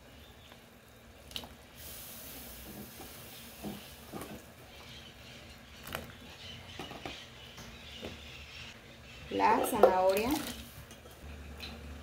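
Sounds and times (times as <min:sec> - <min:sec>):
broth simmering with a hiss: 0:00.0 - 0:05.7.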